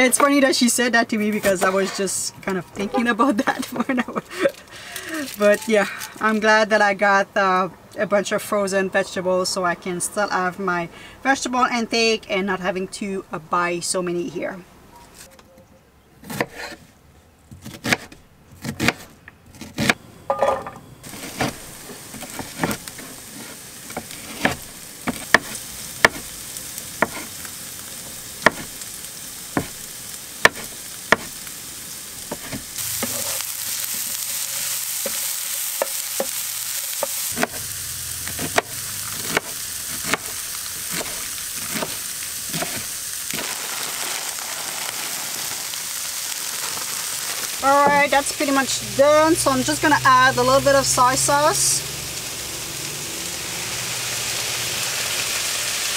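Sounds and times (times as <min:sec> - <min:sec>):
food sizzling in a frying pan: 0:03.0 - 0:06.0, 0:20.3 - 0:55.9
knife chopping on wooden board: 0:17.6 - 0:20.0, 0:23.9 - 0:26.2, 0:27.0 - 0:27.3, 0:28.4 - 0:28.7, 0:29.6 - 0:29.8, 0:30.4 - 0:31.3, 0:32.3 - 0:33.4, 0:37.0 - 0:37.6, 0:38.2 - 0:40.3, 0:40.9 - 0:42.9.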